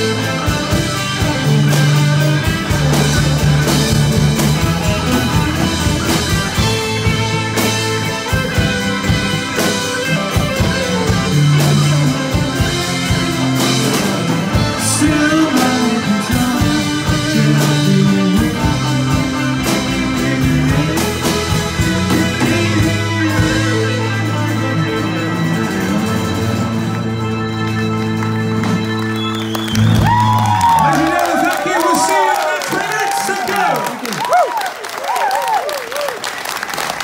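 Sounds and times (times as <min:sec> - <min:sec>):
steady drum beat: 0:00.0 - 0:24.8
live rock band playing: 0:00.0 - 0:37.0.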